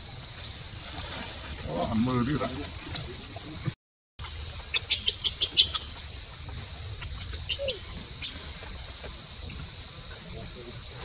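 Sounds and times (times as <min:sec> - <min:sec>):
high-pitched animal chirps: 0:07.3 - 0:08.4.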